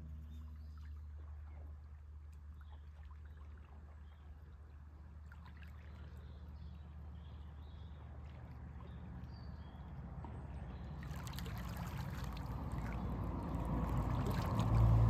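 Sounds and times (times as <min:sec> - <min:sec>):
small waves lapping at shoreline: 0:00.0 - 0:15.0
steady low rumble: 0:09.6 - 0:15.0.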